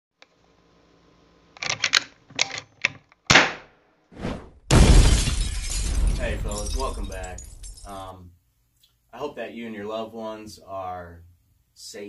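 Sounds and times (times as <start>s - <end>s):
loud sharp crack: 3.3s - 3.8s.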